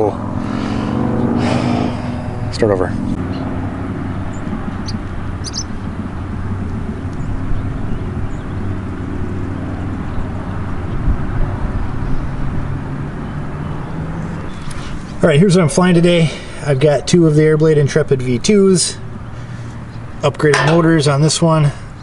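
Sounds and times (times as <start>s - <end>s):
low rumble and hum: 0.0s - 13.5s.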